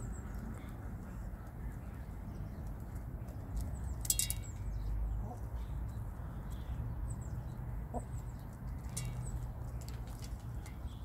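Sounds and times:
chickens pecking metal bowl: 4.0 - 4.8, 8.7 - 10.5.

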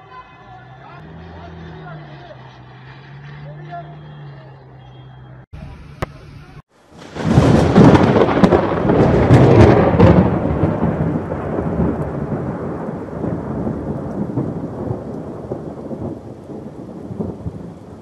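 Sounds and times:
steady rain: 6.7 - 18.0
thunder clap rumbling: 6.9 - 18.0.

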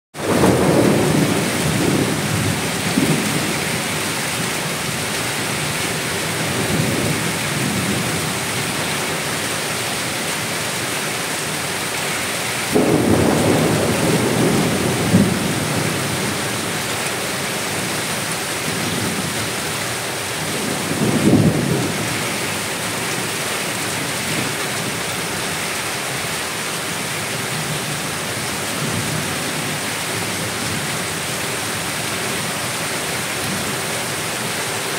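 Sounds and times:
thunder rumbling: 0.2 - 9.2, 12.7 - 19.5, 20.1 - 23.0
heavy rain falling: 0.2 - 34.9.

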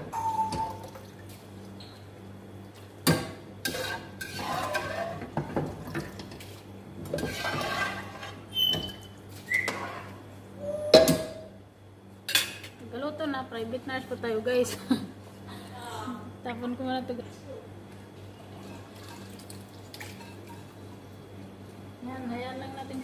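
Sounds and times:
spoon scraping strainer: 3.7 - 5.3, 7.2 - 9.0.

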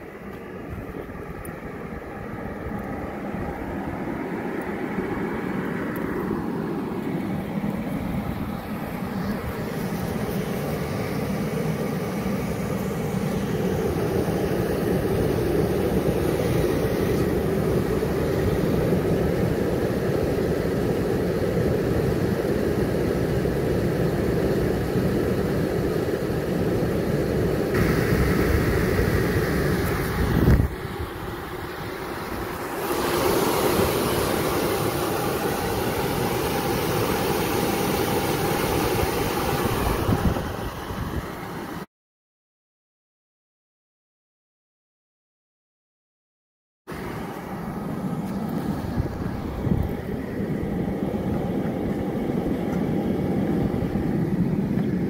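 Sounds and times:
blower motor running: 0.0 - 41.8.

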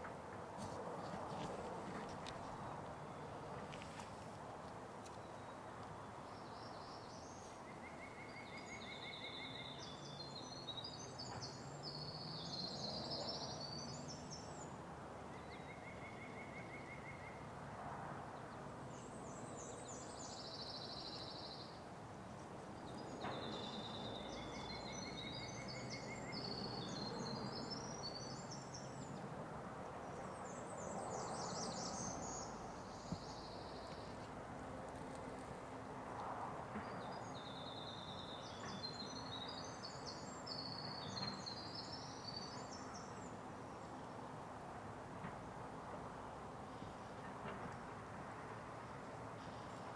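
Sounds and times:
wind rustling trees: 0.0 - 49.9
songbirds singing: 5.0 - 17.5, 18.4 - 35.5, 36.2 - 44.4.

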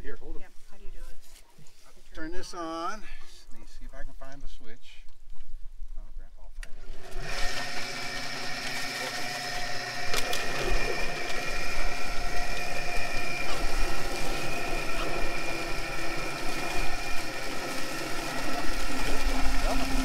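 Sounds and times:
motor humming and whining: 6.6 - 20.0.

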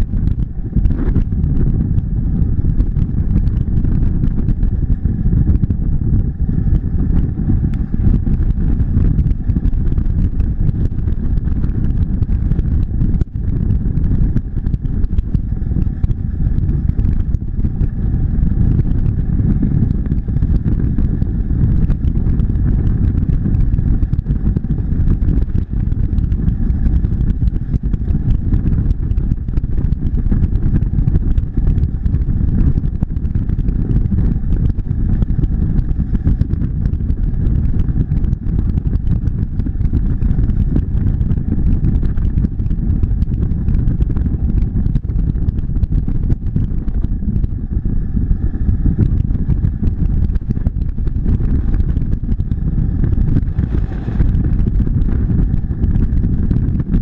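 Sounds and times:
motorcycle engine drone: 0.0 - 57.0
wind and road noise: 0.0 - 57.0.

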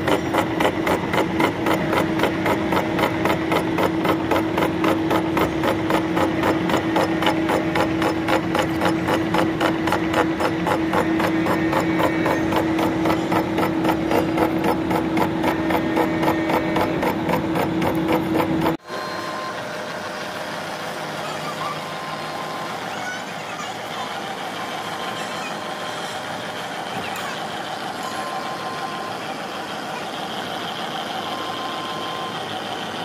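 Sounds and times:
milling cutter ticking on metal: 0.0 - 18.8
milling machine hum: 0.0 - 33.0
quiet machining noise: 0.0 - 33.0.

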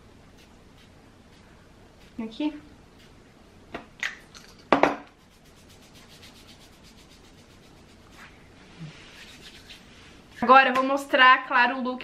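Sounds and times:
hands rubbing together: 5.1 - 10.4.

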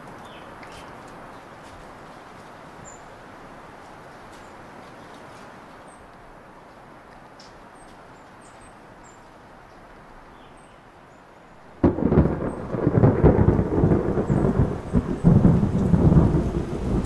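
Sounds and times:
thunderclap and rumbling thunder: 11.6 - 17.0.

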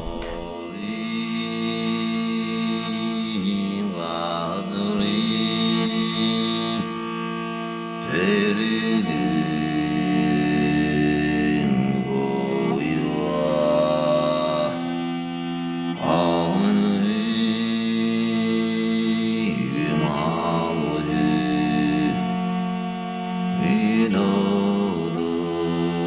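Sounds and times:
held drone: 0.0 - 26.0.

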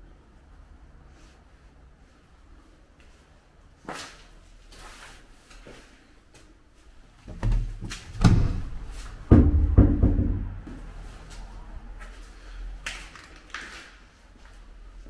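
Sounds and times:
heavy knocks and thuds: 7.2 - 10.7.

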